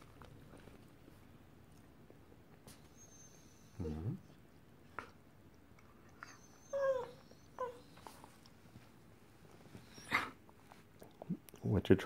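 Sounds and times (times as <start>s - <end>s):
dog whining: 2.7s - 4.4s, 6.0s - 8.4s, 9.8s - 10.5s.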